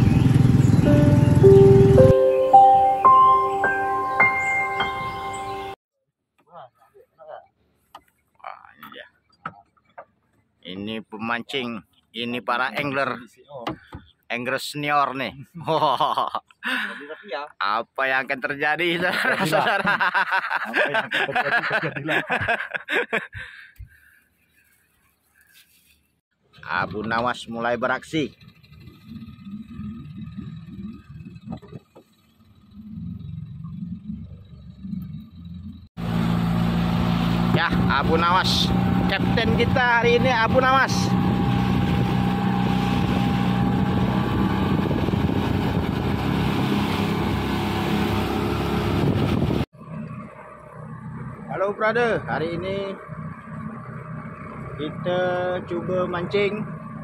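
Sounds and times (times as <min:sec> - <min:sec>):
outboard motor running: 0:00.0 - 0:02.1, 0:27.9 - 0:57.0
man talking: 0:20.7 - 0:22.4, 0:37.5 - 0:41.2
water rushing along hull: 0:36.0 - 0:49.6.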